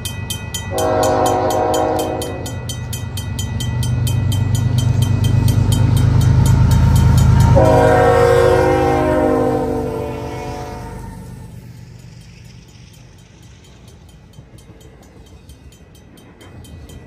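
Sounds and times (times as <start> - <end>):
mechanical crossing bell ringing: 0.0 - 7.6
diesel locomotive rumble: 0.0 - 17.0
locomotive horn blasts: 0.7 - 2.6, 7.5 - 11.3.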